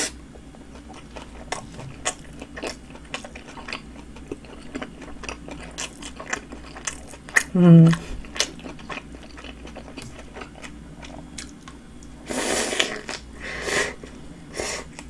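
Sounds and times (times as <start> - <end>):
person chewing with wet clicks: 0.3 - 12.2.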